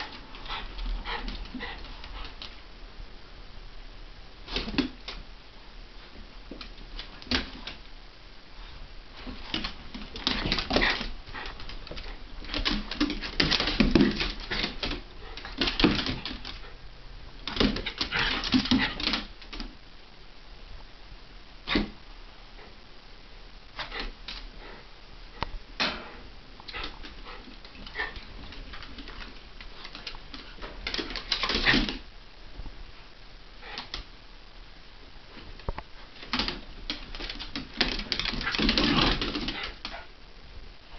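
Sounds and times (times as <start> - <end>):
dogs scuffling: 8.6 - 16.8, 17.4 - 19.8, 26.1 - 32.0, 35.3 - 40.1.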